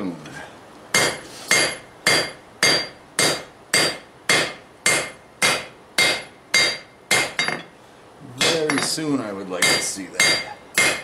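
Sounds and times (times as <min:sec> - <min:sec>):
hammer striking steel on anvil: 0:01.0 - 0:07.7, 0:08.4 - 0:09.0, 0:09.6 - 0:11.0.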